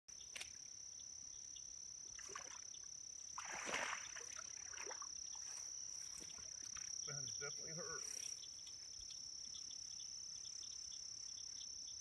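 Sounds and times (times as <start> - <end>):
high-pitched insect trill: 0.1 - 12.0
water sloshing around legs: 3.4 - 6.9.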